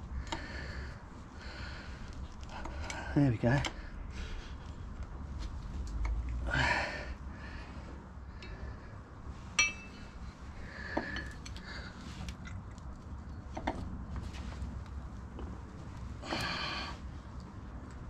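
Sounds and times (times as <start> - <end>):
metallic clinks of tools: 9.6 - 10.1.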